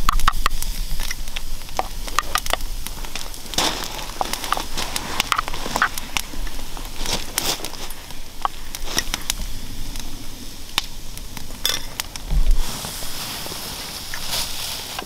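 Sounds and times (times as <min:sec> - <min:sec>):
campfire crackling and popping: 0:00.0 - 0:15.0
dull thump: 0:12.2 - 0:12.9.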